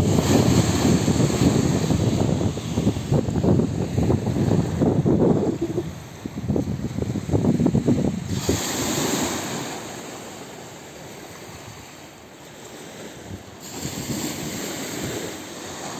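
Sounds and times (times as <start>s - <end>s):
wind buffeting microphone: 0.0s - 10.1s, 13.1s - 15.9s
rushing water: 0.0s - 12.5s.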